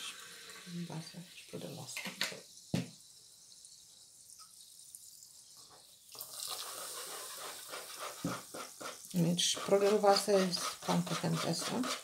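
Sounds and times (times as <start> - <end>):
water pouring into batter: 0.0 - 1.7, 2.4 - 9.0
sparkling water fizzing: 0.0 - 11.9
bottle set down on table: 2.0 - 3.0.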